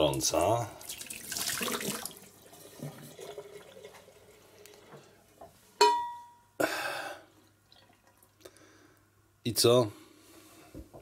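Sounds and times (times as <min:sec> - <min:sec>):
metallic clink of a thermos: 0:05.8 - 0:06.4.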